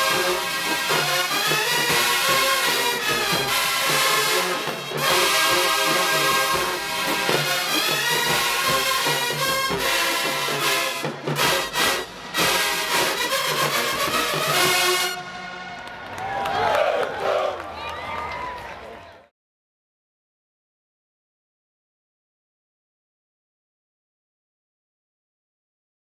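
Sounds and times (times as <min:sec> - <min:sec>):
marching band playing: 0:00.0 - 0:17.6.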